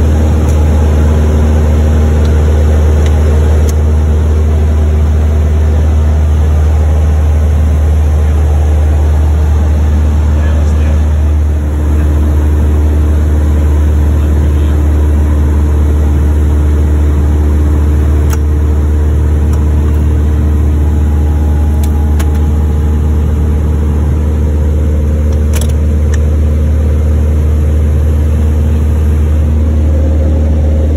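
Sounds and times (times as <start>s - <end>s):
propeller engine drone: 0.0s - 30.9s.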